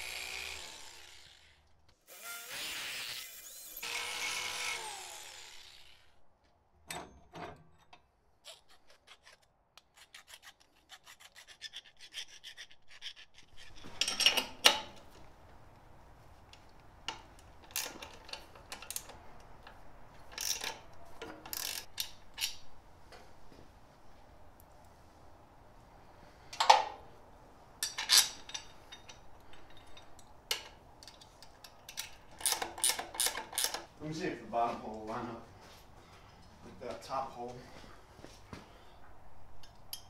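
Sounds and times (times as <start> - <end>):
electric drill boring through metal: 0.0 - 6.1
clicks and scrapes of handling: 7.8 - 14.4
metal tools clinking: 13.5 - 14.8, 27.8 - 33.8.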